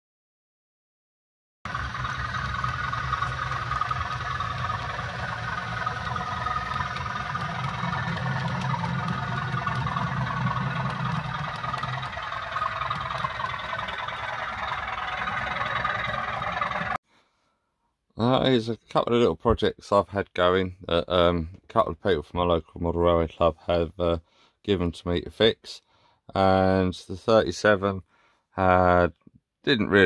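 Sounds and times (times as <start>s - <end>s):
model train running hum: 1.7s - 17.0s.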